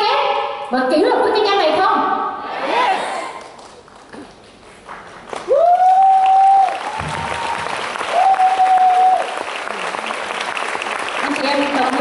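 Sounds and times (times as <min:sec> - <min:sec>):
audience applauding and cheering: 0:04.9 - 0:12.0
long held shouts: 0:05.5 - 0:09.4.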